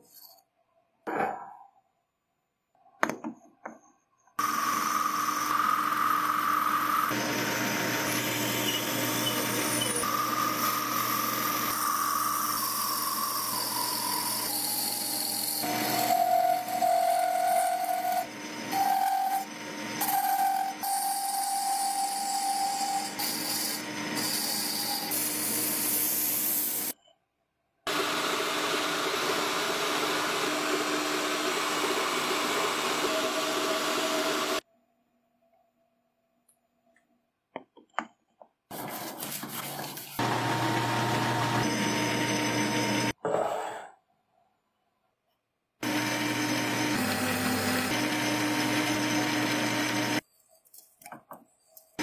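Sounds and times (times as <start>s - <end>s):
drill boring into wood: 4.4s - 26.9s, 40.2s - 43.2s, 45.8s - 50.2s
wood lathe running: 4.4s - 26.9s, 27.9s - 34.6s, 40.2s - 43.2s, 45.8s - 50.2s
tools scraping and shaving wood: 38.7s - 40.5s.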